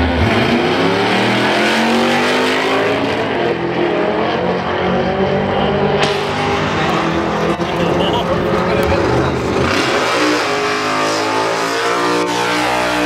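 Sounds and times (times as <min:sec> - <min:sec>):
drag racing cars accelerating: 0:00.0 - 0:13.0.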